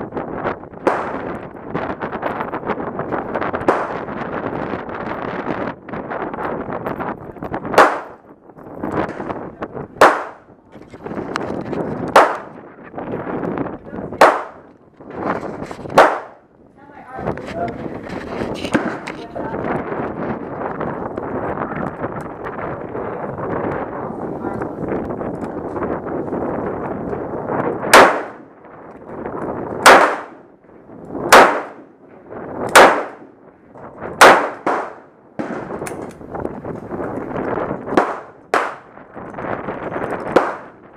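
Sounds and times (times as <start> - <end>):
gunshots with ringing echo: 0.8 - 1.4, 3.6 - 4.2, 7.7 - 8.2, 10.0 - 10.5, 12.1 - 12.6, 14.2 - 14.7, 16.0 - 16.5, 27.9 - 28.6, 29.8 - 30.5, 31.3 - 33.4, 34.2 - 35.9, 37.9 - 39.0, 40.3 - 40.9.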